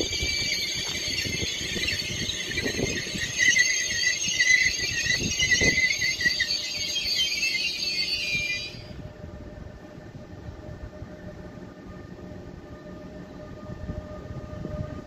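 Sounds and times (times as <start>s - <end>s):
train wheels squealing: 0.0s - 9.2s
train rumbling on rails: 0.0s - 15.0s.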